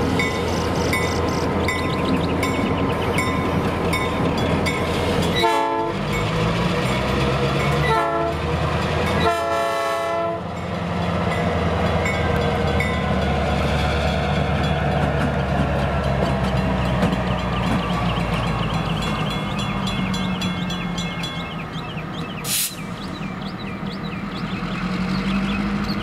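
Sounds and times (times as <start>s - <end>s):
crossing bell ringing: 0.2s - 7.9s, 11.3s - 22.0s
locomotive horn blasts: 5.4s - 6.0s, 7.9s - 8.4s, 9.2s - 10.5s.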